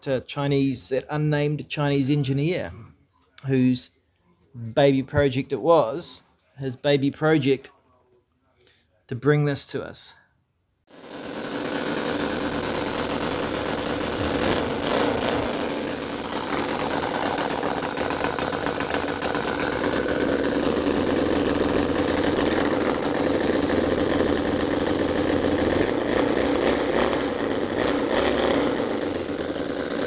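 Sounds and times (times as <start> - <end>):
model petrol engine running: 10.9 - 30.0.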